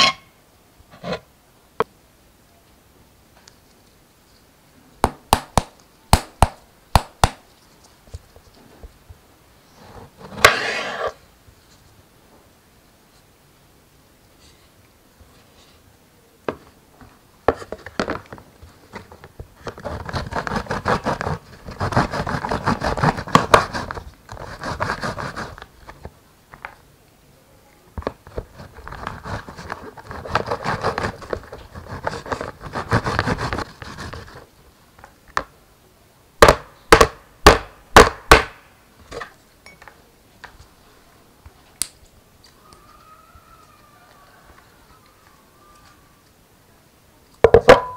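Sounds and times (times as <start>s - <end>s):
tomato rasping on plastic grater: 19.7s - 25.6s, 28.5s - 34.4s.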